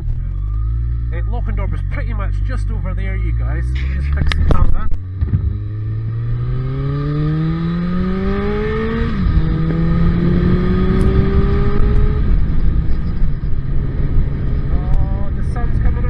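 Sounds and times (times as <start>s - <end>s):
motorcycle engine accelerating: 0.0s - 16.0s
wind noise on microphone: 4.2s - 5.7s, 8.1s - 16.0s.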